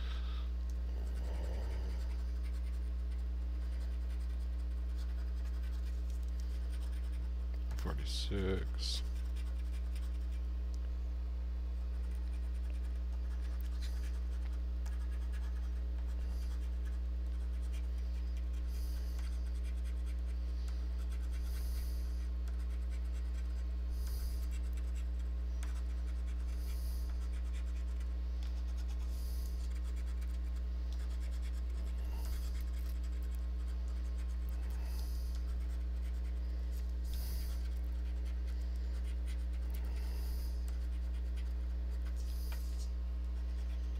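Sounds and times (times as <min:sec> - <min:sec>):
steady low hum: 0:00.0 - 0:43.9
coin scratching lottery ticket: 0:07.8 - 0:10.4.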